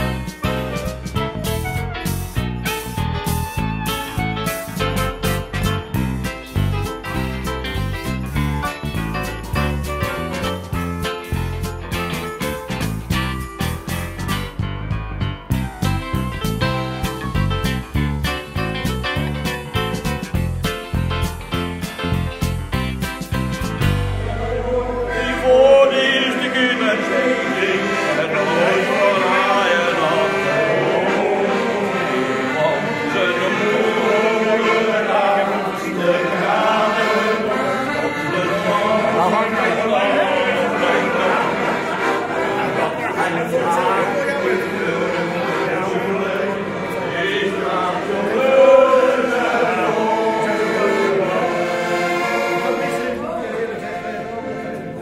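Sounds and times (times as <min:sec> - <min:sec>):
piano accordion playing a tune: 0:00.0 - 0:55.0
voices singing along: 0:24.1 - 0:55.0.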